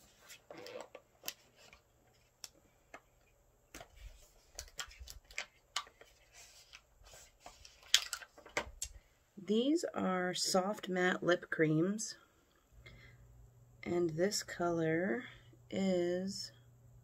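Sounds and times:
packaging clicks and crinkles: 0:07.6 - 0:09.0.

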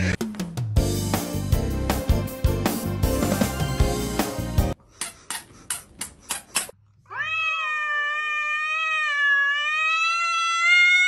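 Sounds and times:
cat yowling: 0:07.1 - 0:11.0.

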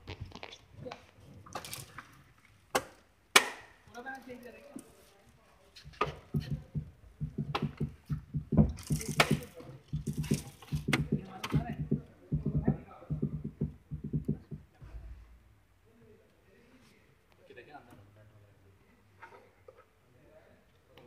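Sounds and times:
plastic armrest clicks and knocks: 0:06.0 - 0:14.5.

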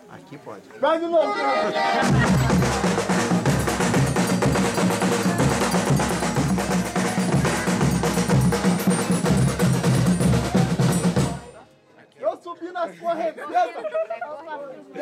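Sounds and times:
folk band playing: 0:01.0 - 0:11.8
drums and percussion beat: 0:02.0 - 0:11.6.

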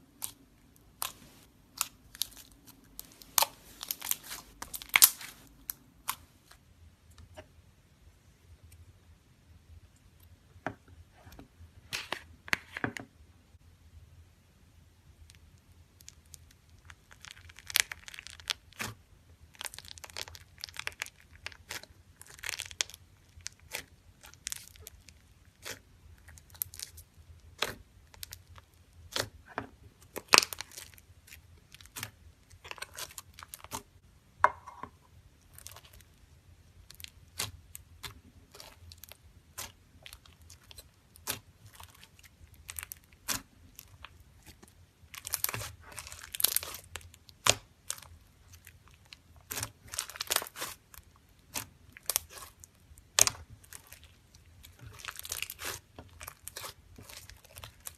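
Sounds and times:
foam beads crackling and popping: 0:01.0 - 0:05.8, 0:16.0 - 0:33.9, 0:36.8 - 0:57.9.

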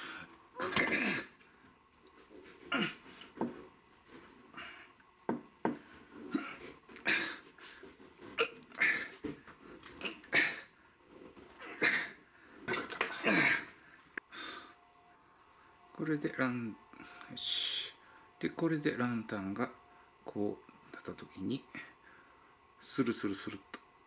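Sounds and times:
person breathing strained and grunting: 0:04.5 - 0:05.0, 0:05.8 - 0:07.9, 0:08.6 - 0:09.4, 0:10.0 - 0:10.8.

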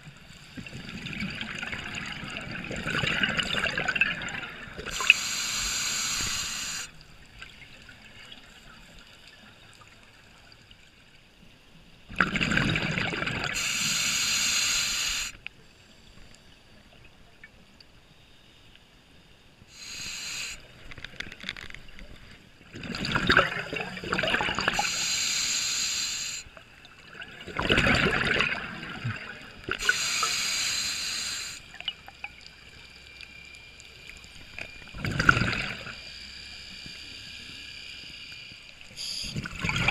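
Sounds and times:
low water hush: 0:00.0 - 0:10.1, 0:12.2 - 0:16.4, 0:19.7 - 0:21.1, 0:22.6 - 0:39.9
hissing regulator inhalation: 0:04.9 - 0:07.0, 0:13.6 - 0:15.4, 0:19.7 - 0:20.9, 0:24.3 - 0:26.6, 0:29.7 - 0:31.8, 0:36.1 - 0:39.5.

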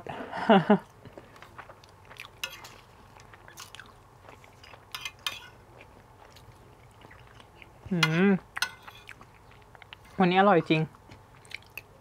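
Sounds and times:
close-miked chewing: 0:00.8 - 0:12.0
spoon scraping a plate: 0:02.4 - 0:02.8, 0:04.8 - 0:05.6, 0:08.0 - 0:09.2.

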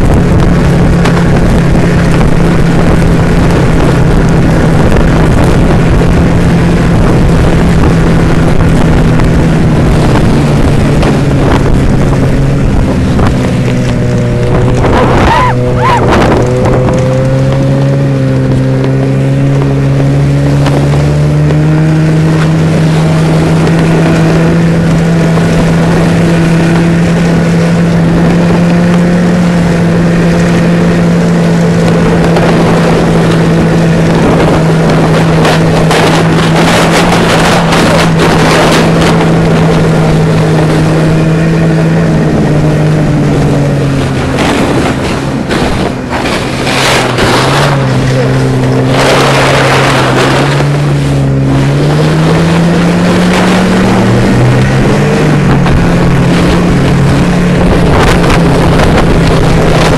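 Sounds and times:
snowmobile engine running: 0:00.0 - 0:59.9
loud rushing noise: 0:31.9 - 0:59.9.

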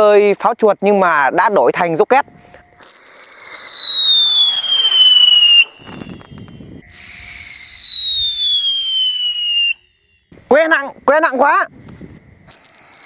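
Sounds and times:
low crackle: 0:02.2 - 0:07.4
shrill falling firecracker whistles: 0:02.8 - 0:10.1, 0:12.5 - 0:13.0.

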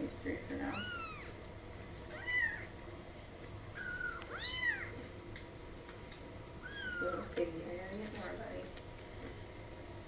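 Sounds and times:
kittens mewing: 0:02.1 - 0:02.8, 0:03.7 - 0:05.0, 0:06.6 - 0:07.3.

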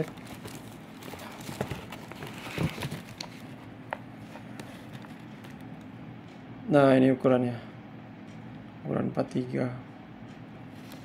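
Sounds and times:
hands handling a football boot: 0:00.0 - 0:05.6
faint steady hum: 0:00.0 - 0:11.0.

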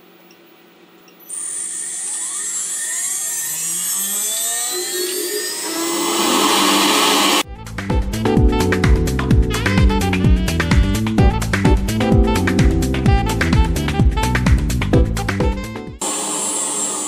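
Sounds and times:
spindle motor whine rising: 0:01.2 - 0:07.5, 0:16.0 - 0:17.0.

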